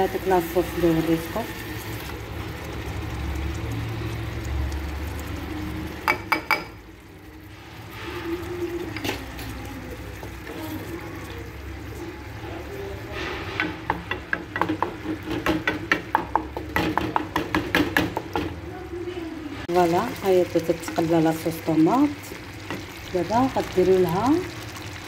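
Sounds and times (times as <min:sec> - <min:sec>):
sauce sizzling in a saucepan: 0:00.0 - 0:18.5, 0:19.6 - 0:25.0
wooden spoon scraping a pan: 0:07.7 - 0:16.0.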